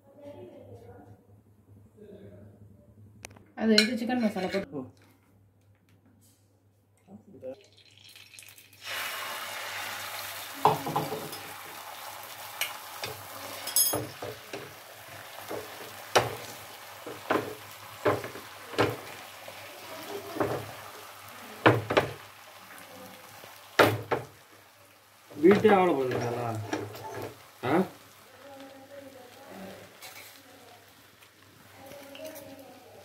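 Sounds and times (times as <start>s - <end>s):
egg sizzling on griddle: 7.6s - 33.0s.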